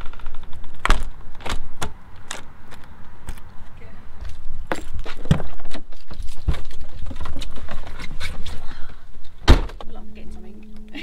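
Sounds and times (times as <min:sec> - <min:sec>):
low rumble: 0:09.2 - 0:11.0.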